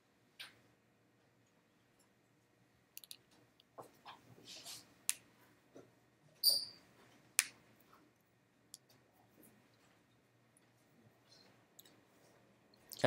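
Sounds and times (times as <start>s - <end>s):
small clicks and taps: 3.0s - 4.2s
short high squeak: 6.4s - 6.8s.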